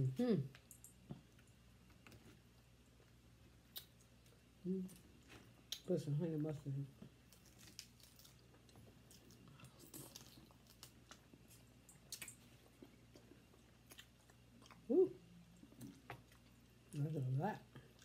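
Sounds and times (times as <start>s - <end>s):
chewing food: 7.3s - 18.0s.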